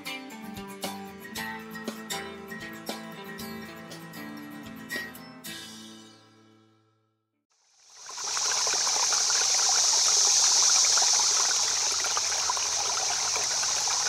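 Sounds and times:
running water: 7.8s - 14.0s.

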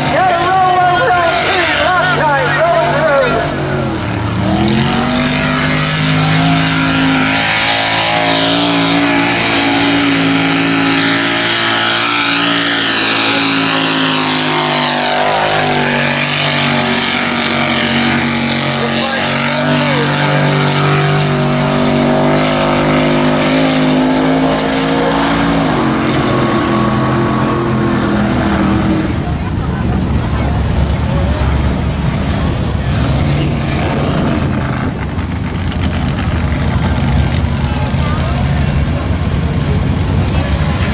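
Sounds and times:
truck engine revving high: 0.0s - 40.9s
mud and water spraying: 4.5s - 29.8s.

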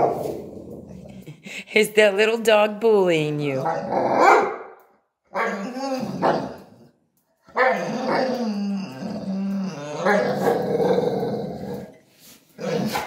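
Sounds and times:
dog growling: 0.0s - 1.6s, 3.6s - 4.3s, 5.4s - 6.9s, 7.5s - 12.0s, 12.6s - 13.0s.

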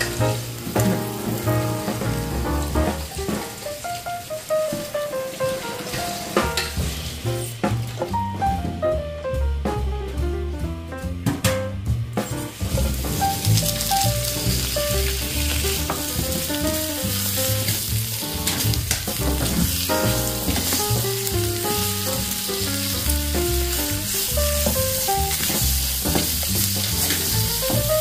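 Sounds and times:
background music with bass: 0.0s - 3.3s, 6.4s - 28.0s
sausage sizzling in a pan: 0.0s - 7.6s, 12.5s - 28.0s
spatula stirring in pan: 24.2s - 27.3s.

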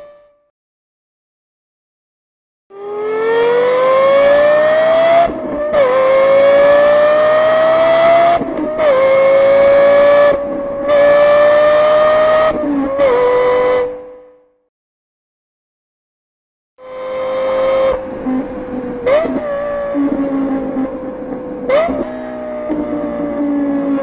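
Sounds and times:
car engine accelerating hard: 2.7s - 14.3s, 16.8s - 24.0s.

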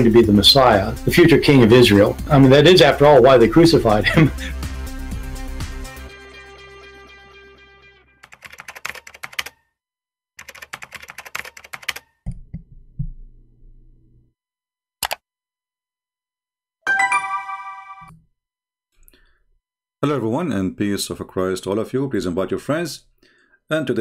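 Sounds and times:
music: 0.0s - 8.2s, 16.9s - 18.1s
computer keyboard key clicks: 8.3s - 9.5s, 10.4s - 12.4s, 15.0s - 15.2s
short bright chime: 16.9s - 18.1s.

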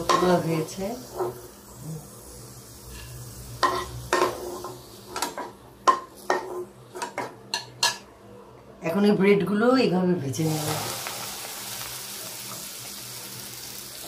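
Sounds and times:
faint ghee sizzle: 0.0s - 5.3s, 10.3s - 14.0s.

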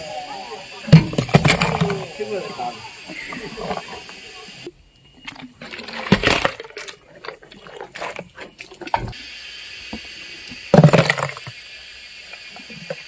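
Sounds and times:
hippo chewing with wet crunching: 6.6s - 9.1s.

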